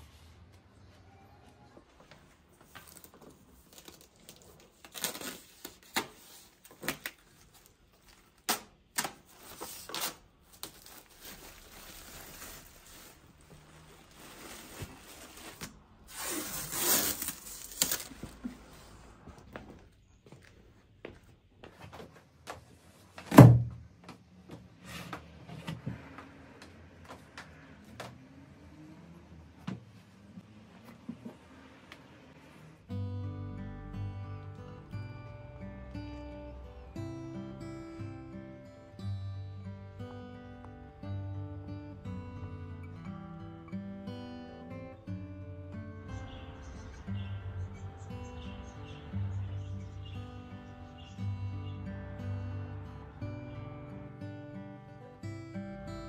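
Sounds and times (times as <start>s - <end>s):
long tearing rustle: 9.4s - 18.4s.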